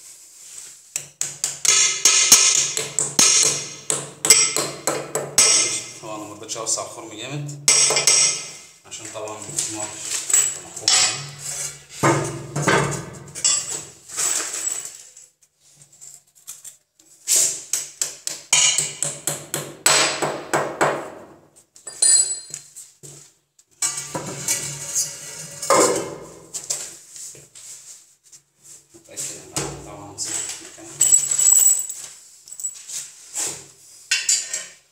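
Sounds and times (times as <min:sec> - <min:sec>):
hammer tapping: 0:01.0 - 0:05.8.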